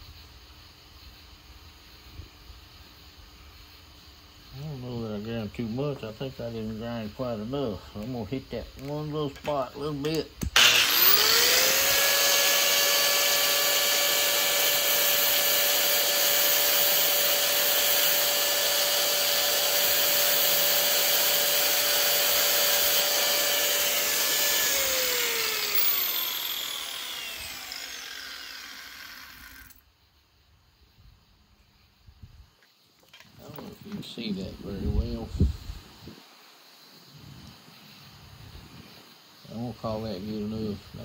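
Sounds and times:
power grinder whining: 8.8 - 29.8
grinder spinning down: 10.4 - 29.8.

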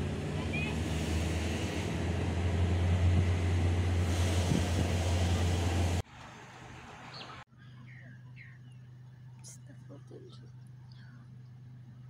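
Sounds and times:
vehicle engine humming: 0.0 - 12.0
wind on microphone: 1.0 - 6.0.

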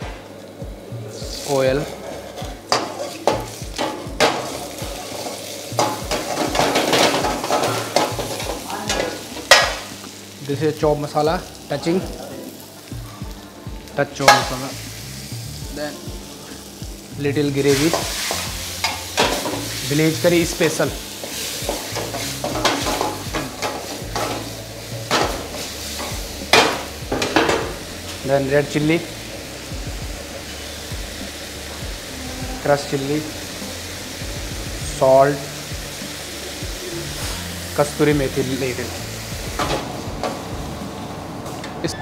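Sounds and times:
food sizzling in hot oil: 0.0 - 42.0
ladle scraping and clanking wok: 1.9 - 9.9, 17.7 - 19.8, 21.1 - 27.8.

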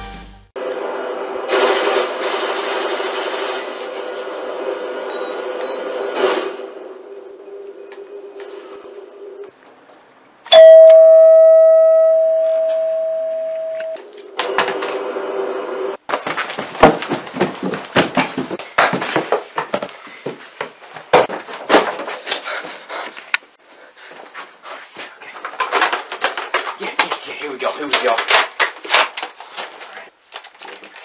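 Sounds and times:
doorbell chime: 10.5 - 14.6.

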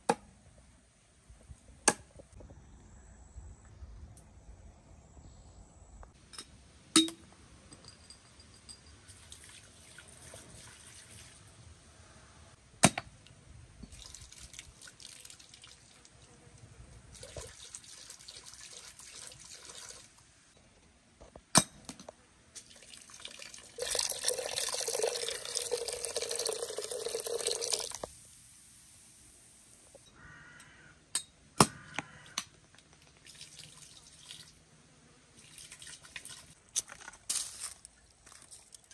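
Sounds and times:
liquid pouring into a pot: 22.6 - 28.1.

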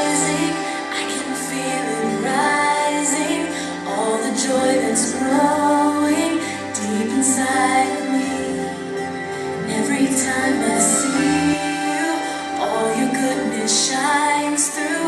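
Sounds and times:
instrumental backing music: 0.0 - 15.0
woman singing gentle melody: 0.0 - 15.0.

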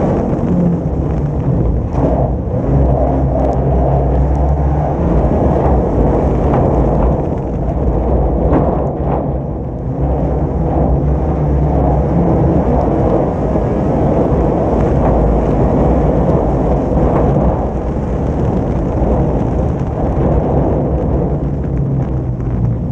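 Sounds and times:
race car engine drone: 0.0 - 22.9
wind and road noise: 0.0 - 22.9.

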